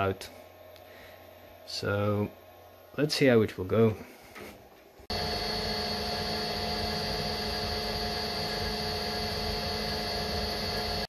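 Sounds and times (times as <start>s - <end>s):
milling machine spindle whine: 5.1s - 11.0s.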